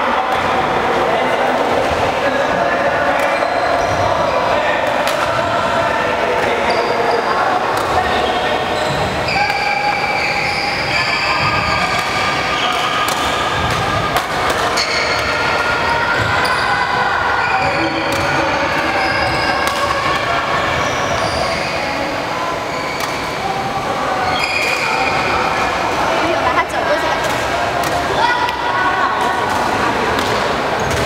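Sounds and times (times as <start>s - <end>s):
sneakers squeaking on court floor: 6.5s - 23.4s, 24.2s - 25.6s
rackets striking shuttlecocks: 11.5s - 15.4s.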